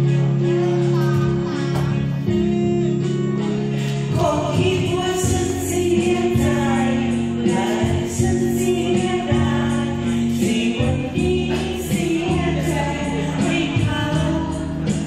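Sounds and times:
backing music: 0:00.0 - 0:15.0
man and woman singing a duet: 0:03.9 - 0:15.0.

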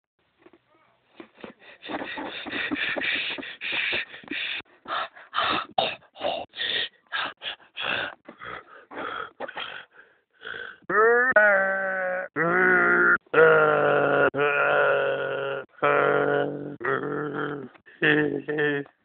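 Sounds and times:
person wheezing huffs: 0:01.4 - 0:10.9.

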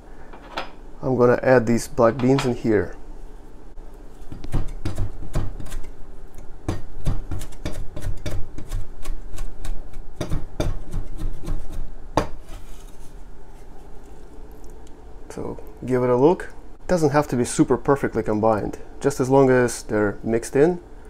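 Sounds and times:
cleaver chopping on wooden board: 0:09.6 - 0:12.4.

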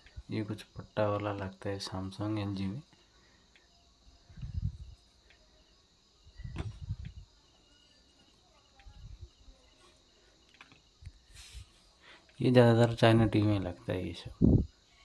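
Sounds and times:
cables rustling and bumping: 0:06.4 - 0:07.2.

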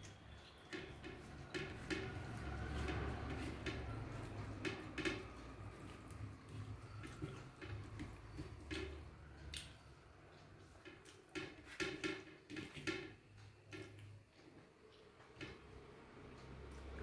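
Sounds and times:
soft chewing: 0:00.0 - 0:11.8
fingers mixing rice on a plate: 0:00.0 - 0:17.0.

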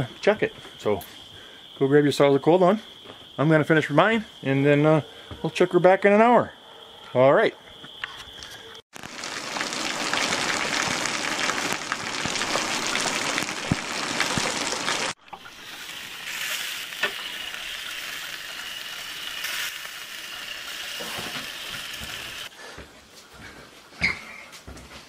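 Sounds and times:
hiss of falling rain: 0:09.0 - 0:22.5.

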